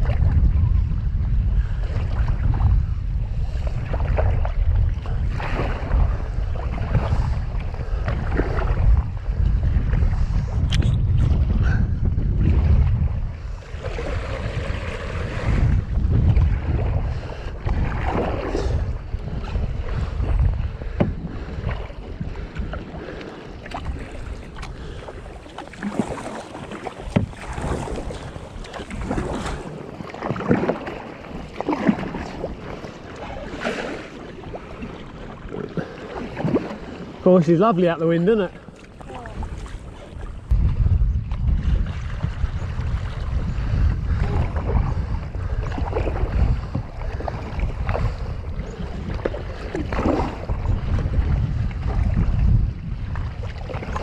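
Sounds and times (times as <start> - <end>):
paddle strokes splashing water: 0.0 - 54.0
wind buffeting microphone: 0.0 - 54.0.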